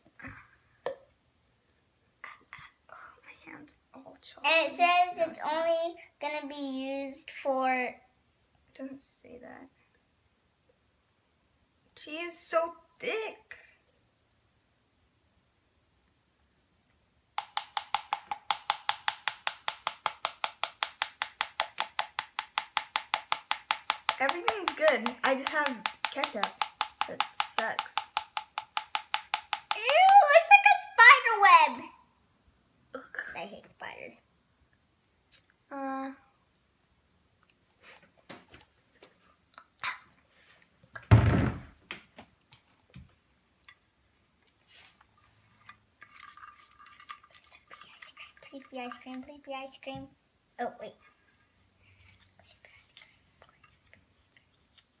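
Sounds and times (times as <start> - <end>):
plastic spoon tapping cup rim: 17.4 - 30.2.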